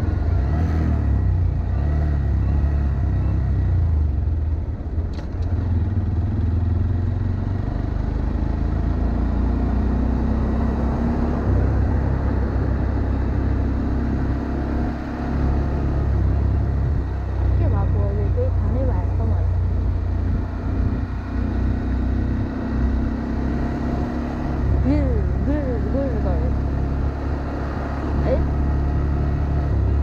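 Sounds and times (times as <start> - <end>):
motorcycle engine running: 0.0 - 30.0
wind rumble on microphone: 16.0 - 22.6, 29.1 - 30.0.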